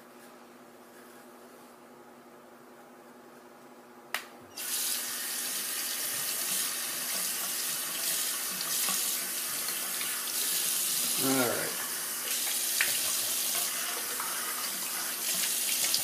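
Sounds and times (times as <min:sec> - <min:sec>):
tap water running into basin: 0:04.6 - 0:16.0.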